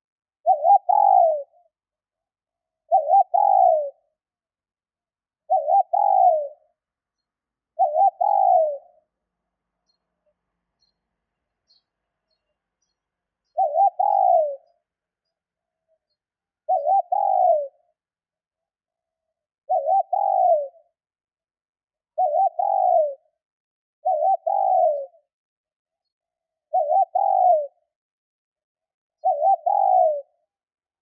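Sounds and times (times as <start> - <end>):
dove cooing: 0.4 - 1.7, 2.8 - 4.1, 5.5 - 6.7, 7.8 - 9.1, 13.5 - 14.7, 16.6 - 17.8, 19.6 - 21.0, 22.2 - 23.3, 24.0 - 25.3, 26.7 - 27.8, 29.2 - 30.4.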